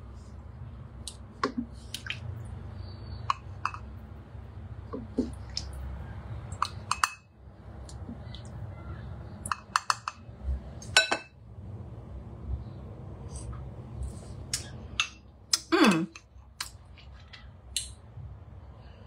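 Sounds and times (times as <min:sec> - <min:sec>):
spoon clinking on bowl and mug: 0:06.9 - 0:07.3.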